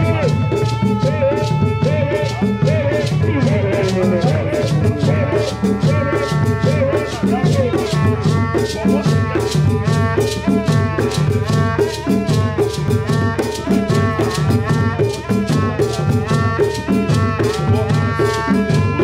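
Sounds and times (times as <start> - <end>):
hand drums: 0.0 - 19.0.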